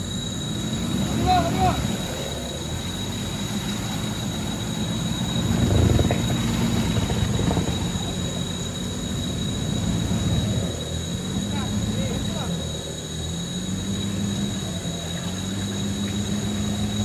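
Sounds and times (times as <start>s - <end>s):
vehicle engine revving under load: 0.0s - 17.0s.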